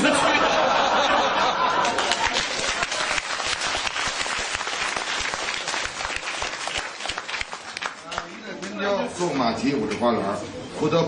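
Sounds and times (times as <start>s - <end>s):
audience applauding: 1.4s - 8.5s.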